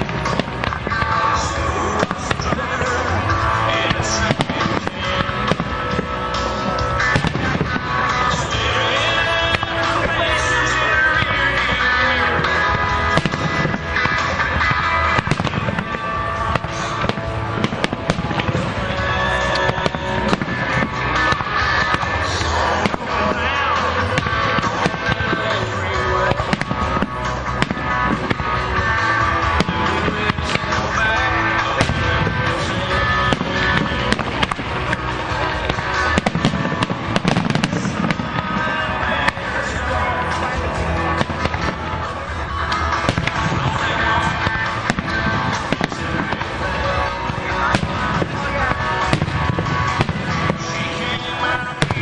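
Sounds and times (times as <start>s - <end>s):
fireworks bursting and crackling: 0.0s - 52.0s
loud music: 0.0s - 52.0s.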